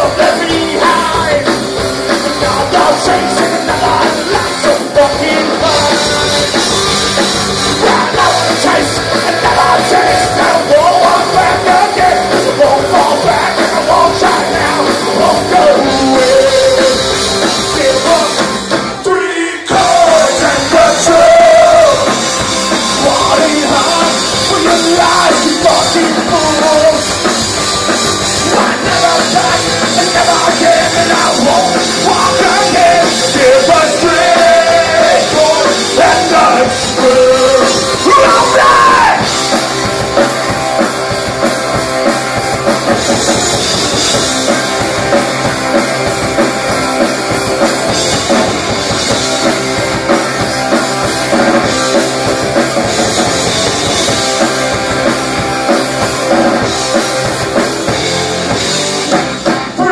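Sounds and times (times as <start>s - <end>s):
person singing: 0.0s - 6.9s, 7.7s - 27.2s, 28.4s - 39.4s
distorted electric guitar: 0.0s - 59.9s
drum kit: 0.0s - 59.9s
electric bass: 0.0s - 59.9s.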